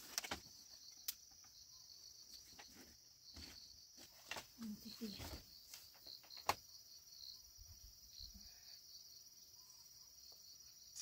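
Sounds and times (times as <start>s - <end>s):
high-pitched insect chirring: 10.8s - 11.0s.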